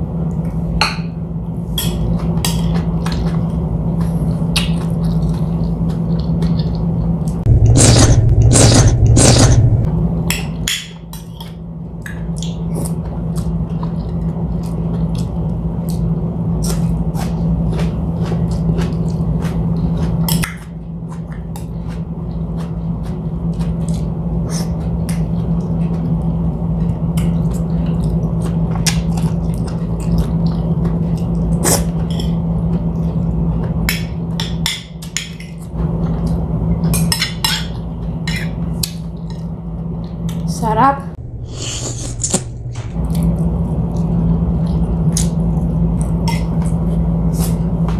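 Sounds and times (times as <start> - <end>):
low steady hum: 0.0 - 47.9
chewing: 2.6 - 7.4, 12.4 - 33.8.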